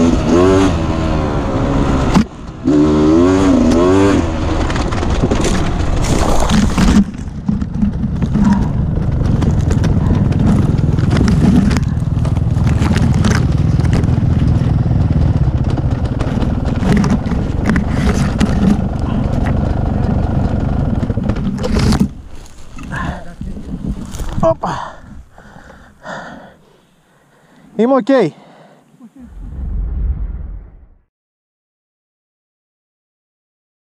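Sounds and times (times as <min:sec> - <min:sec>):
two-stroke motorcycle engine revving: 0:00.0 - 0:22.2.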